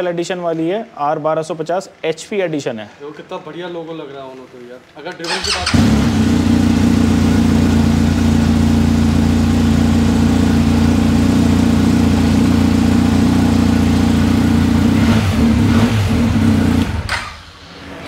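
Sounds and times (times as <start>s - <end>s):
motorcycle engine idling: 5.3s - 17.1s.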